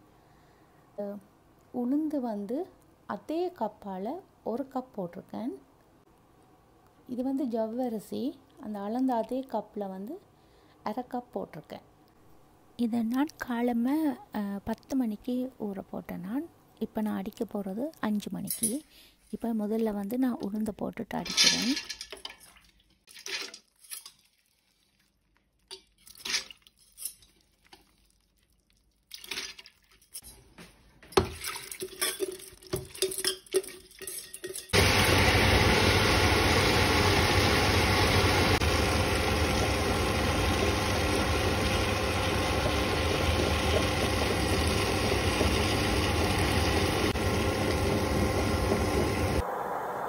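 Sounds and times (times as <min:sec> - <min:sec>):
wet grinder running: 0:34.8 - 0:49.4.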